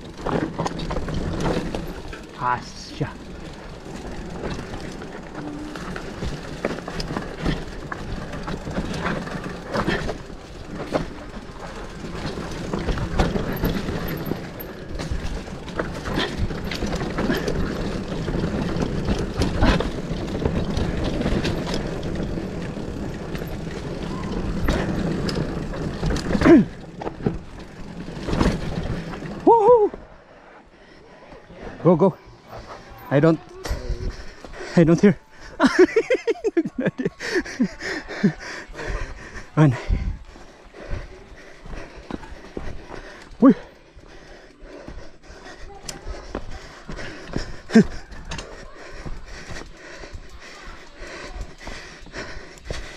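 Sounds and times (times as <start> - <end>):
bike knocks and rattles: 0.0 - 29.6
bike tyres rumbling over dirt: 0.0 - 30.5, 37.2 - 52.9.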